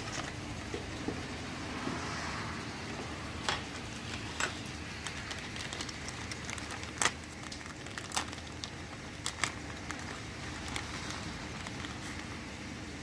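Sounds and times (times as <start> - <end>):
steady low hum: 0.0 - 13.0
plastic packaging crinkling: 3.8 - 12.7
small parts clicking: 4.1 - 12.3.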